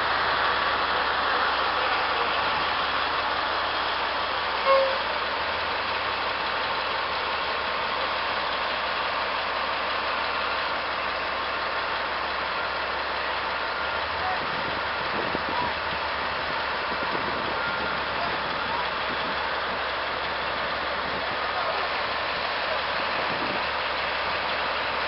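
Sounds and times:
diesel truck engines idling: 0.0 - 25.0
short high tone: 4.6 - 5.1.

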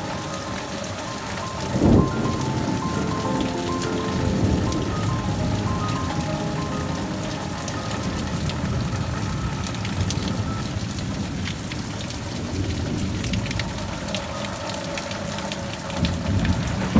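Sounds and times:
heavy rain pouring: 0.0 - 16.9.

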